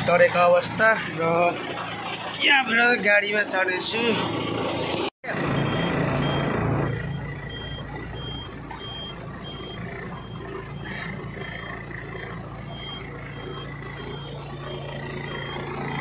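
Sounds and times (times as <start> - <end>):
diesel engine idling: 0.0 - 16.0
short high warning beeps: 5.5 - 16.0.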